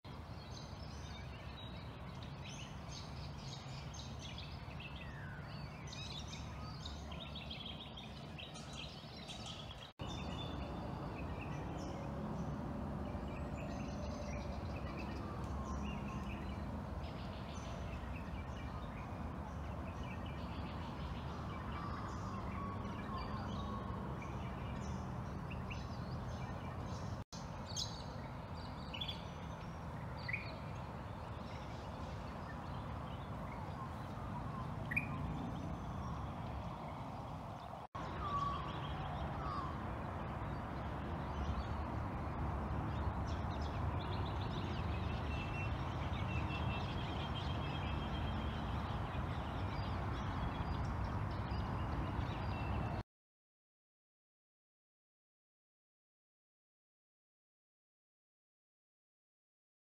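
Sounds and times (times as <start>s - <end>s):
bird calls: 13.0s - 37.0s.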